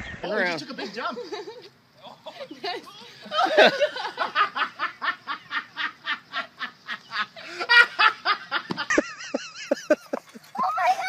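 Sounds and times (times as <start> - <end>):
person laughing hard: 3.3 - 11.0.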